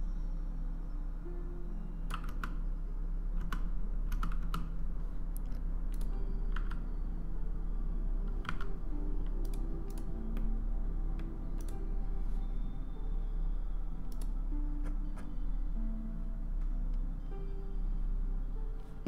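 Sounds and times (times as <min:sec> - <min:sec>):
low steady hum: 0:00.0 - 0:19.0
keyboard and mouse clicks: 0:02.1 - 0:02.6, 0:03.4 - 0:04.7, 0:05.4 - 0:06.8, 0:08.3 - 0:10.5, 0:11.6 - 0:11.8.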